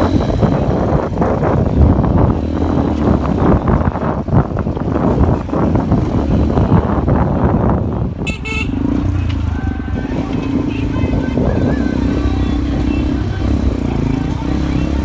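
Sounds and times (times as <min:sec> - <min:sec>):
motorcycle engine running: 0:00.0 - 0:15.0
wind buffeting microphone: 0:00.0 - 0:15.0
high-pitched horn toot: 0:08.2 - 0:08.8.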